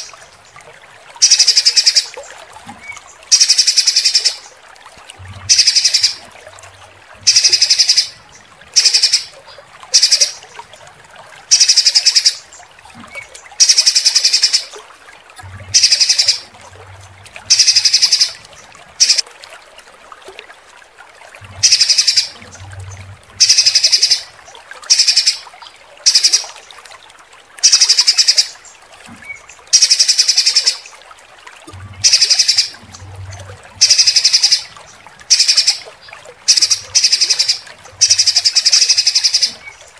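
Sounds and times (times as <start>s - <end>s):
flowing water hiss: 0.0s - 39.9s
harsh high-pitched bird calls: 3.3s - 4.4s, 5.5s - 6.2s, 7.3s - 8.2s, 8.8s - 9.4s, 10.0s - 10.4s, 11.5s - 12.4s, 15.7s - 16.5s, 17.5s - 18.4s, 21.6s - 22.4s, 23.4s - 24.3s, 24.9s - 25.4s, 32.0s - 32.8s, 33.8s - 34.7s, 35.3s - 35.8s, 36.5s - 39.7s.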